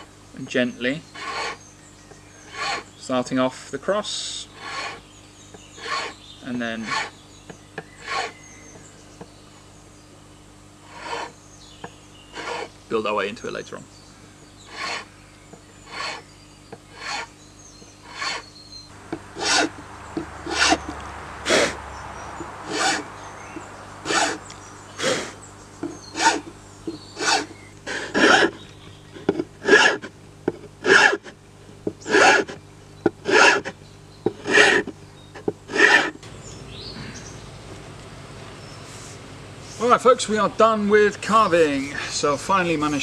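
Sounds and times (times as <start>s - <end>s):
hand file rasping on wood: 1.2s - 1.6s, 2.4s - 2.9s, 4.5s - 5.0s, 5.8s - 7.2s, 7.9s - 8.4s, 10.8s - 11.4s, 12.3s - 12.7s, 14.7s - 15.1s, 15.8s - 16.2s, 16.9s - 17.3s, 18.0s - 18.5s, 19.4s - 19.8s, 20.4s - 20.8s, 22.7s - 23.1s, 24.0s - 24.4s, 25.0s - 26.5s, 27.2s - 28.6s, 29.2s - 30.1s, 30.8s - 31.4s, 32.0s - 32.6s, 33.2s - 36.2s.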